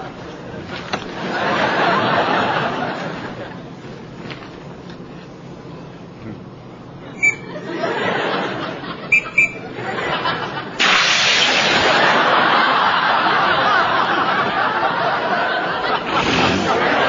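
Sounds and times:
studio audience laughing: 1.1 - 3.6, 7.4 - 17.0.

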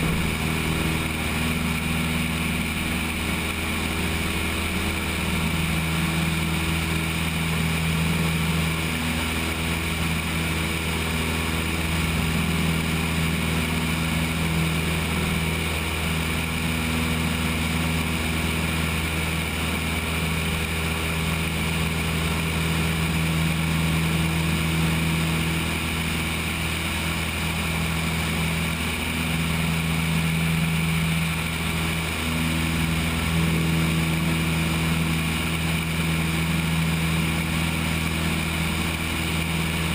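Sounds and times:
rushing airflow: 0.0 - 21.2
light aircraft engine drone: 0.0 - 39.9.

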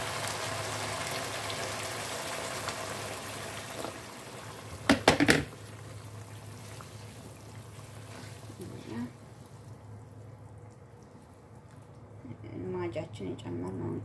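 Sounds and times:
water pouring into a pan: 0.0 - 9.8.

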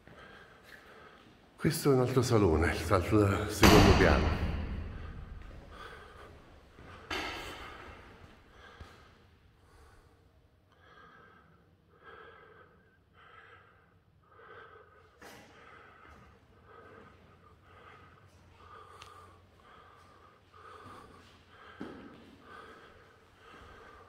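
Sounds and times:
sharp knock: 3.6 - 5.0
person breathing close to microphone: 3.8 - 24.0.

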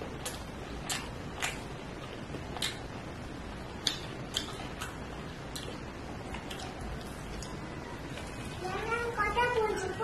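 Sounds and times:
low steady hiss: 0.0 - 10.0
mouth chewing wet smacks: 0.1 - 3.1, 3.7 - 7.6.

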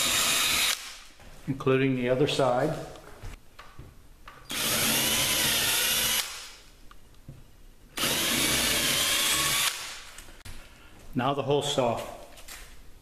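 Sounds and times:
cordless drill drilling into wood: 0.0 - 0.9, 4.5 - 6.4, 8.0 - 9.9.

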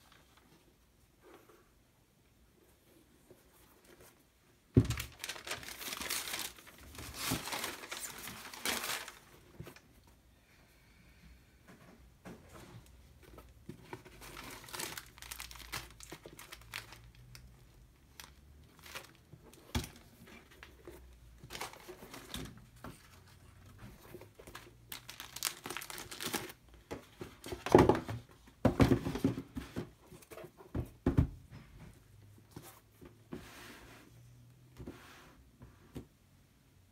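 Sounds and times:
paper and plastic packaging crinkling: 4.8 - 9.8, 13.2 - 28.0.

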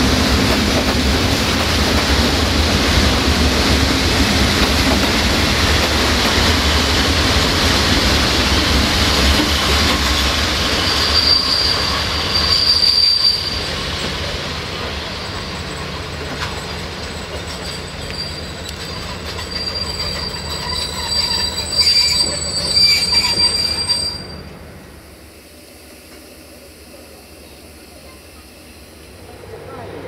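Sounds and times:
rail clicks: 0.0 - 24.6
train rumble: 0.0 - 30.0
train wheels squealing: 8.9 - 29.2.

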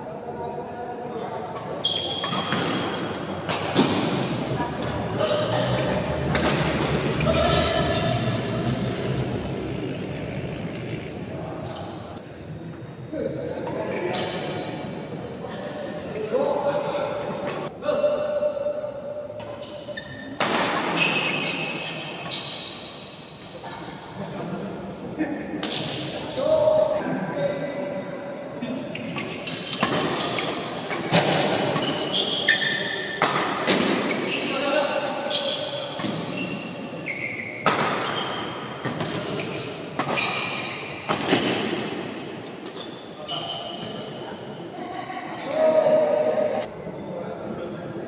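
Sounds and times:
shoes squeaking on court floor: 1.6 - 11.0, 19.4 - 23.4, 28.9 - 41.6, 42.7 - 44.2
racket hitting shuttlecock: 6.3 - 7.0, 33.1 - 34.2, 37.6 - 38.1, 40.0 - 42.9.

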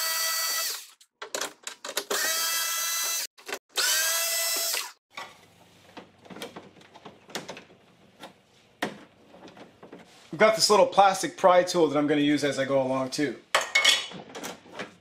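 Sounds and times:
power screwdriver whirring: 2.1 - 5.0.

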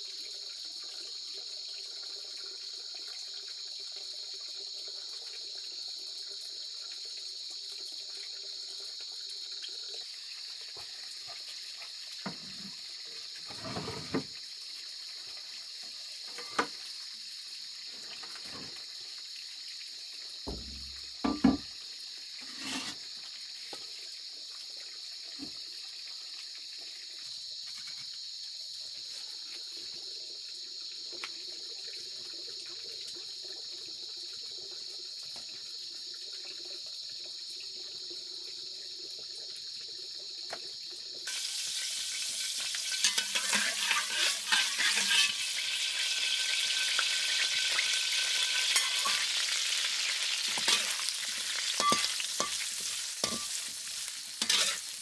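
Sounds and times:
kitchen items knocking and clattering: 20.5 - 21.7
steady high hiss: 41.3 - 55.0.

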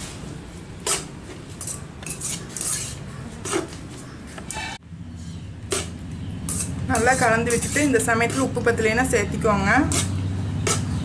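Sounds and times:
spoon scraping metal pan: 0.8 - 3.7, 5.7 - 11.0.

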